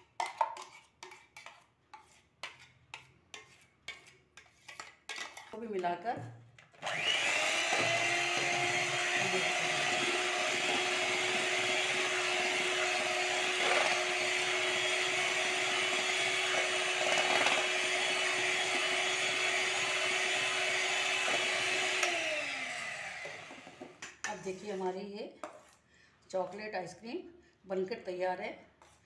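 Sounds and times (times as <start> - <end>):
electric hand mixer whirring: 6.8 - 24.0.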